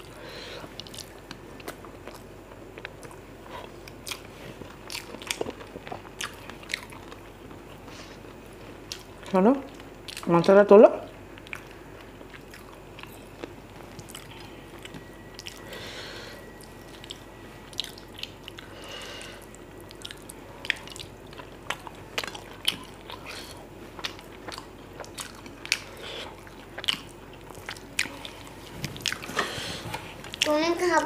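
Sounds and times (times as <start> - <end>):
chewing and mouth smacks: 0.7 - 7.9, 11.3 - 15.6, 16.6 - 18.8, 19.4 - 29.4.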